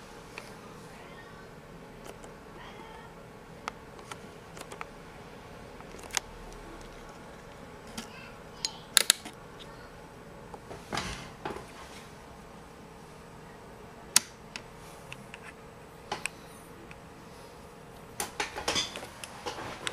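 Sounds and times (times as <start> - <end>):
faint steady hum: 0.0 - 19.9
fingers clicking plastic connectors: 3.6 - 4.9, 5.8 - 7.1.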